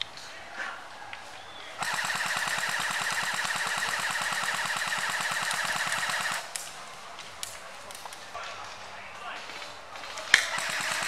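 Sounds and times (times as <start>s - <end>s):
airsoft gun full-auto burst: 1.8s - 6.6s, 10.4s - 11.0s.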